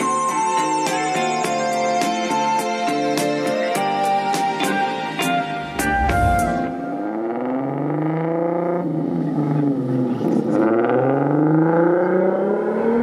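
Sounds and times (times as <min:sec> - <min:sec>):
car engine revving: 0:05.5 - 0:13.0.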